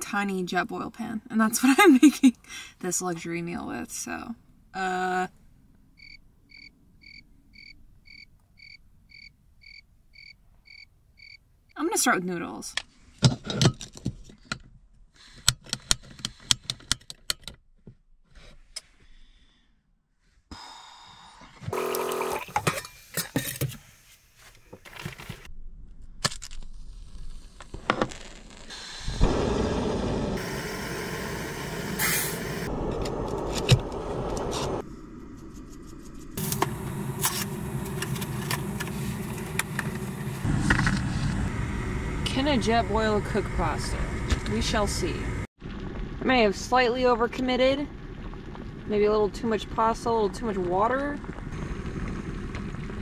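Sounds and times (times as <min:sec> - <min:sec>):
gas burner hissing: 0:28.6 - 0:34.8, 0:36.4 - 0:45.5.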